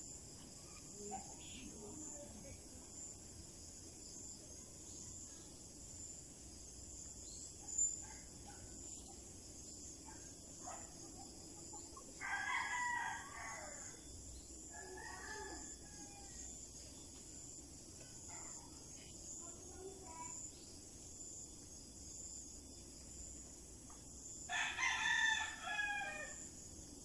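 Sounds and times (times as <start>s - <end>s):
rooster crowing: 12.2s - 13.8s, 24.5s - 26.4s.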